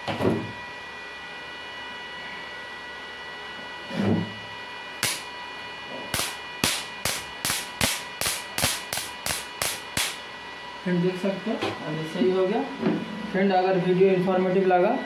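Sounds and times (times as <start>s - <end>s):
electric arc snaps: 5.0s - 5.3s, 6.1s - 10.2s.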